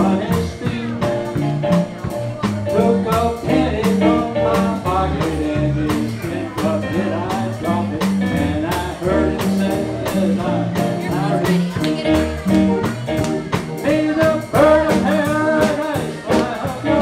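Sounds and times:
drum kit beat: 0.0 - 17.0
electric guitar: 0.0 - 17.0
keyboard: 0.0 - 17.0
man singing: 0.0 - 17.0
walking bass line: 0.0 - 17.0.

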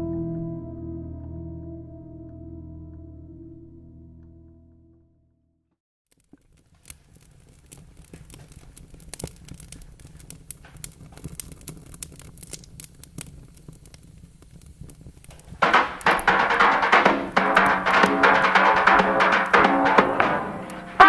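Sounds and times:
wood fire crackling: 6.1 - 21.0.

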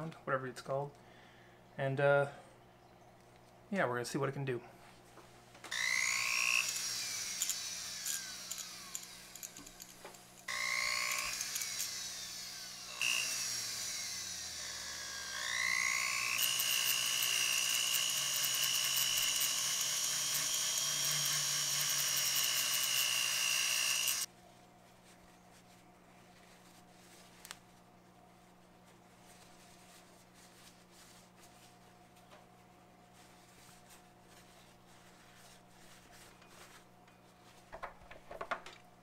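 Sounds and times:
rotary tool whining: 5.7 - 24.3.

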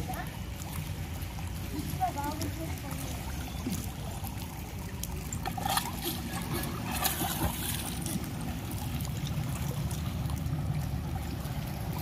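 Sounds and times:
steady low rumble: 0.0 - 12.0.

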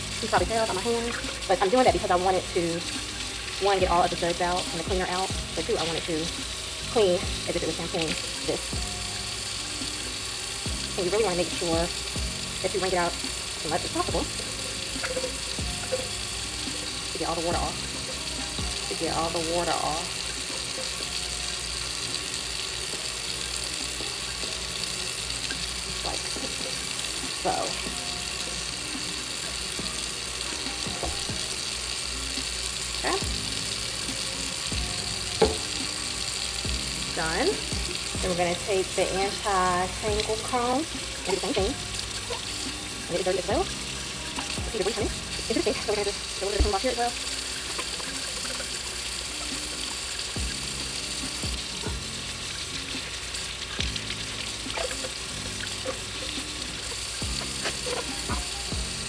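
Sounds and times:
faucet running into sink: 0.0 - 59.0
soft background music: 0.0 - 59.0
tap water splashing on plastic: 7.1 - 9.0, 10.7 - 21.2, 29.8 - 31.5, 33.0 - 36.0, 39.1 - 48.8, 49.4 - 56.5, 57.2 - 58.9
brush bar knocking on countertop: 35.4 - 35.7.

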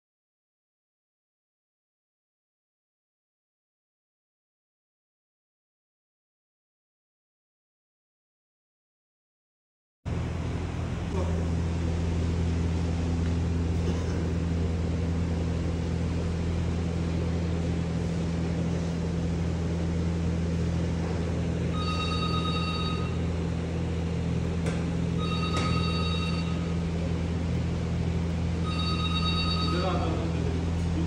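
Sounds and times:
low mechanical hum: 10.1 - 31.0
electronic ringing tone: 21.7 - 23.4, 25.2 - 26.8, 28.6 - 30.3.

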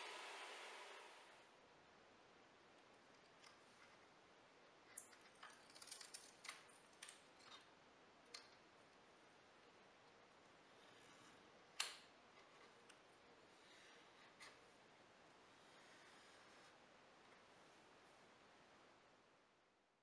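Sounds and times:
tape rustling and clicking: 4.8 - 7.7.

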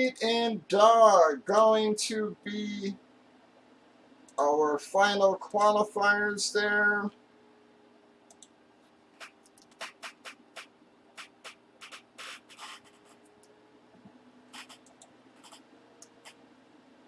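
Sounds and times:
faint steady hum: 0.0 - 17.0
pen writing on paper: 9.2 - 13.2, 14.5 - 14.8.

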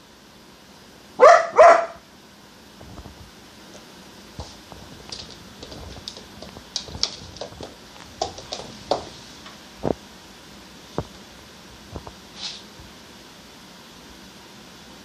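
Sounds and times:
dog claws clicking on wood floor: 4.4 - 9.6.

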